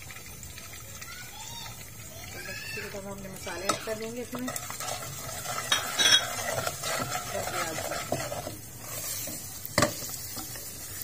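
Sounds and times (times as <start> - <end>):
seeds sizzling in hot oil: 0.0 - 11.0
spatula scraping a metal pot: 3.5 - 10.5.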